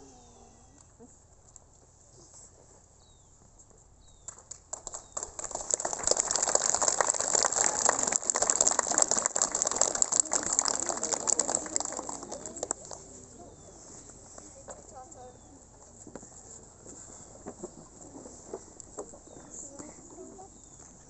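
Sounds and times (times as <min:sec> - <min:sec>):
crowd applauding: 0:04.7 - 0:13.1.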